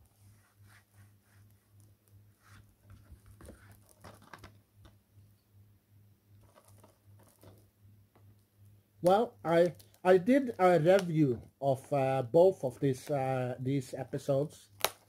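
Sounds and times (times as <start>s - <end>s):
plastic case clicks and rustles: 3.4s - 5.0s.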